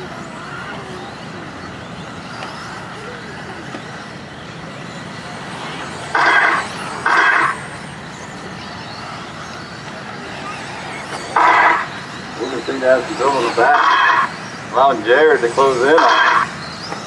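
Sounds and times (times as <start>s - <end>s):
whir of electric toy cars: 0.0s - 17.0s
electronic buzzer tones: 6.1s - 7.6s, 11.3s - 12.0s, 13.4s - 14.4s, 15.9s - 16.6s.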